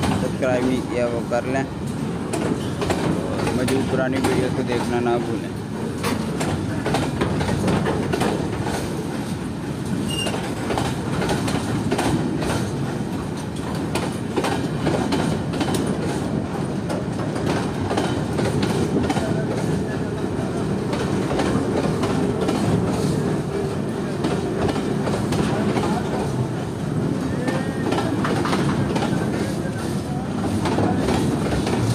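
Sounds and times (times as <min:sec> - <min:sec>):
train wheels rumbling on rails: 0:00.0 - 0:31.9
wheels clicking over rail joints: 0:06.0 - 0:19.8.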